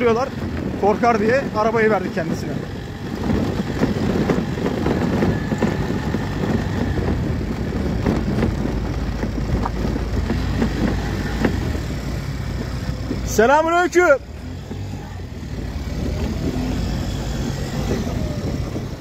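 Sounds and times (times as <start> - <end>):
scooter engine running: 0.0 - 19.0.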